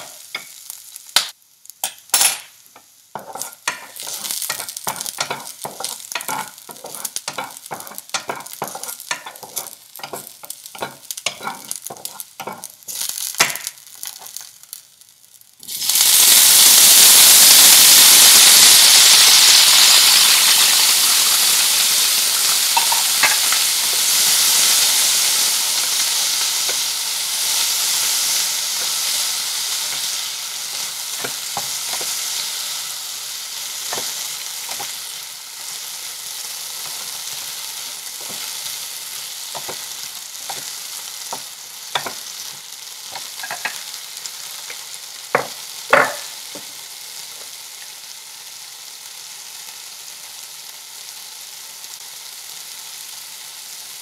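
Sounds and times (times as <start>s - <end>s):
okra sizzling in a frying pan: 0.0s - 54.0s
wooden spatula stirring: 3.2s - 12.7s.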